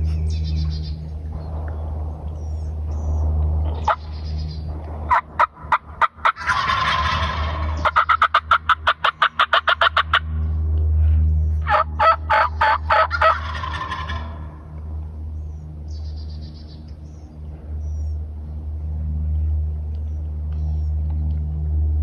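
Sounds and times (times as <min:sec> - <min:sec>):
steady low hum: 0:00.0 - 0:22.0
turkey calling: 0:03.8 - 0:10.3, 0:11.6 - 0:14.5.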